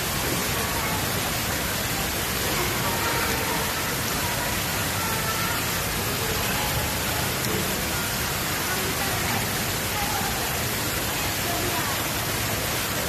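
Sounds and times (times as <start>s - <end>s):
fountain water splashing into pool: 0.0s - 13.0s.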